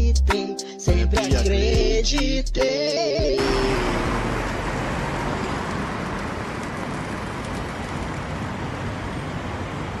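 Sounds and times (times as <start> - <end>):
city street traffic: 3.3 - 10.0.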